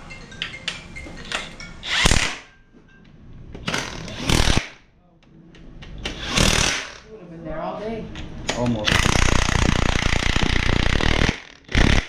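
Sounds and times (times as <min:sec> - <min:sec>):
impact wrench hammering on bolt: 0:06.0 - 0:07.0.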